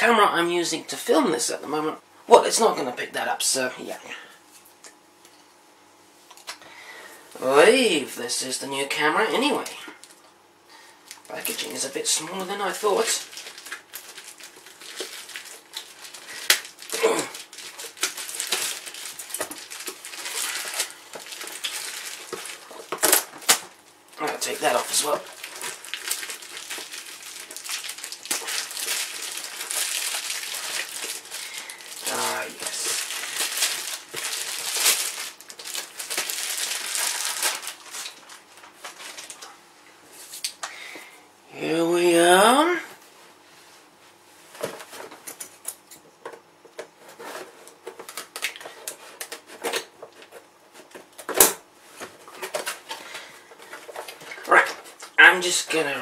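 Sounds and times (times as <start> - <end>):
plastic wrap crinkling: 11.1 - 39.6, 46.8 - 56.0.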